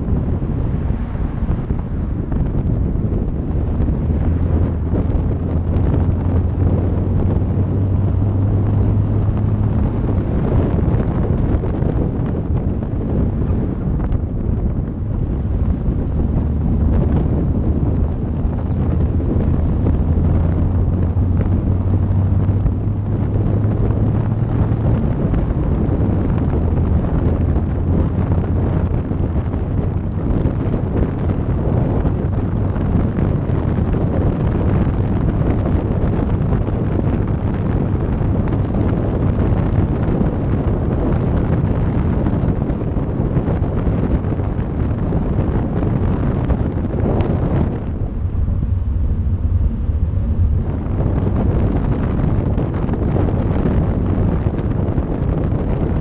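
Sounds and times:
car engine and road drone: 0.0s - 56.0s
wind buffeting microphone: 0.0s - 56.0s.

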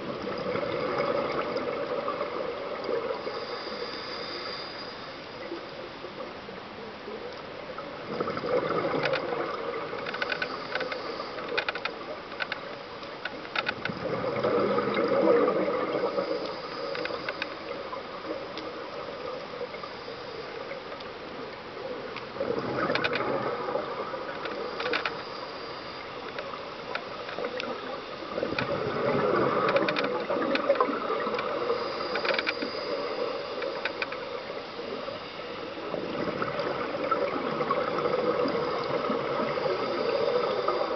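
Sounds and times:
exhaled bubbles underwater: 0.0s - 3.6s, 8.0s - 10.0s, 13.9s - 16.9s, 22.0s - 24.8s, 27.4s - 32.1s, 32.7s - 40.9s
sharp clicks: 16.4s - 17.7s, 24.3s - 27.8s, 28.4s - 34.3s.

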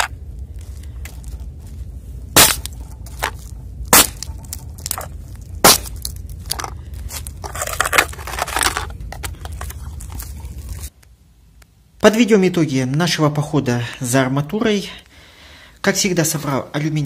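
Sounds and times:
cans crushed underfoot: 2.3s - 10.9s
crushed cans crinkling: 2.4s - 10.9s.

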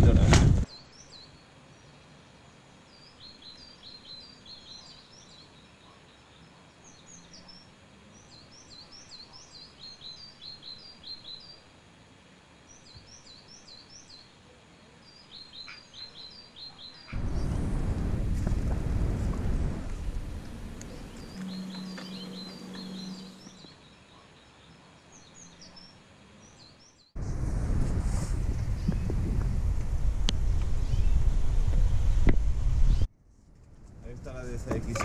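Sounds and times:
wind buffeting microphone: 0.0s - 0.6s, 17.1s - 23.6s, 27.2s - 33.1s
songbirds chirping: 0.6s - 27.2s, 30.4s - 33.1s.

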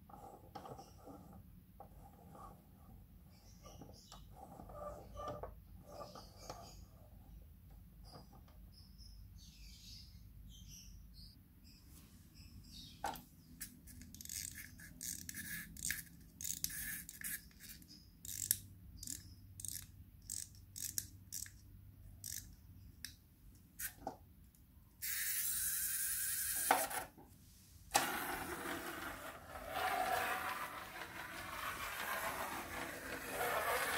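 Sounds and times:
plastic toy clicks and scrapes: 13.6s - 21.6s, 22.2s - 22.5s, 27.9s - 33.9s.

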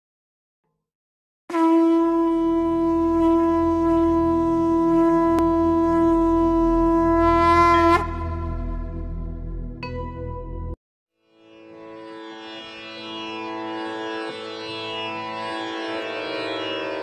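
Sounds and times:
conch shell blown: 1.5s - 9.3s
low drone: 7.9s - 9.8s.

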